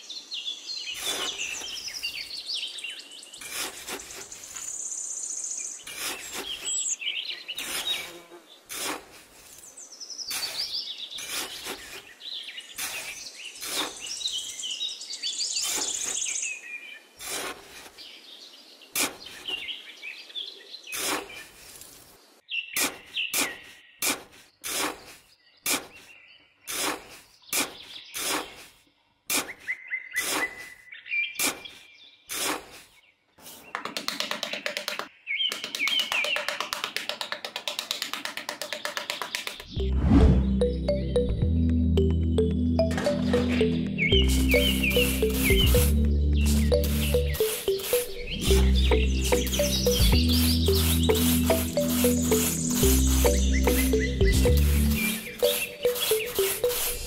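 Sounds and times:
birds chirping: 0:00.0 - 0:08.7, 0:09.4 - 0:57.0
metal trowel scraping damp sand: 0:01.0 - 0:01.8, 0:03.4 - 0:04.5, 0:05.8 - 0:06.9, 0:07.6 - 0:09.6, 0:10.3 - 0:12.1, 0:12.8 - 0:14.1, 0:17.2 - 0:18.0, 0:20.9 - 0:22.0, 0:22.8 - 0:26.1, 0:26.7 - 0:30.7, 0:31.4 - 0:33.7, 0:43.2 - 0:48.7, 0:49.3 - 0:57.0.

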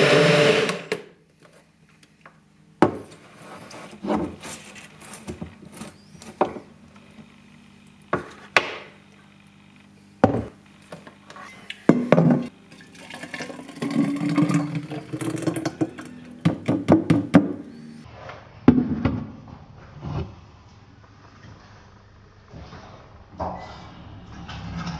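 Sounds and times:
juice pouring into jar: 0:12.7 - 0:16.1.

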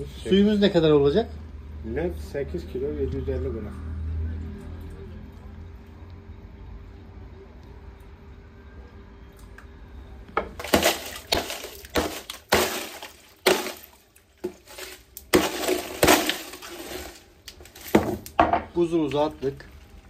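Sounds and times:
metal tool striking ice: 0:10.6 - 0:17.2
ice cracking and clattering: 0:10.6 - 0:18.4.

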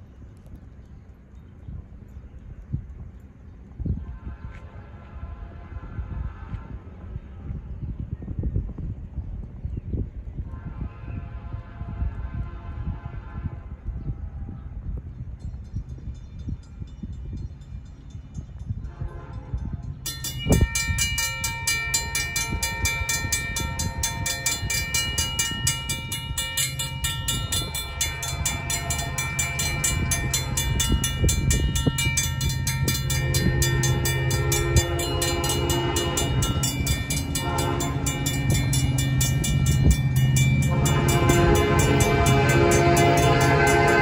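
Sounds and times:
train horn long blasts: 0:04.0 - 0:07.7, 0:10.5 - 0:14.7, 0:18.8 - 0:44.0
diesel locomotive rumble: 0:10.2 - 0:44.0
railroad crossing bells ringing: 0:15.4 - 0:44.0.

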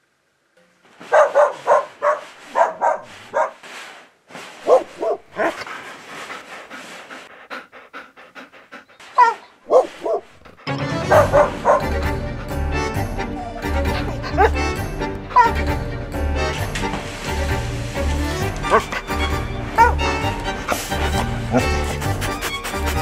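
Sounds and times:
dog barking and yipping: 0:01.0 - 0:03.6, 0:04.6 - 0:05.7, 0:09.0 - 0:12.2, 0:13.9 - 0:15.6, 0:18.6 - 0:19.1, 0:19.7 - 0:20.8.

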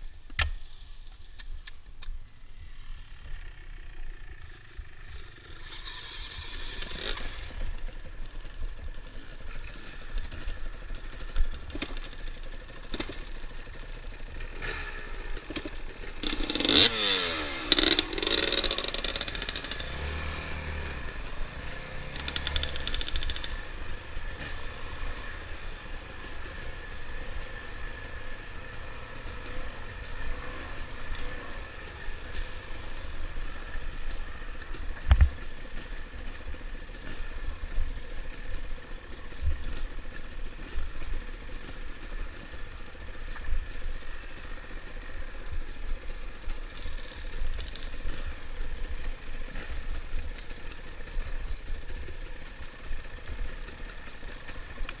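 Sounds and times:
dirt bike engine revving: 0:02.6 - 0:08.0, 0:09.7 - 0:34.7
bike clattering over rough trail: 0:03.3 - 0:55.0.

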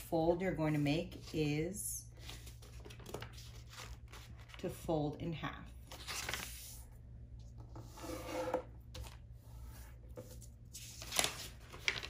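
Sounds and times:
paper rustle: 0:02.2 - 0:04.7, 0:05.9 - 0:06.8, 0:10.2 - 0:12.0.

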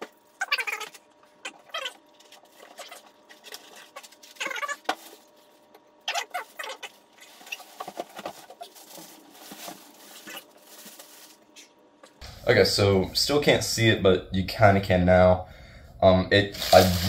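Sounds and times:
plastic bag crinkling: 0:01.8 - 0:11.6.

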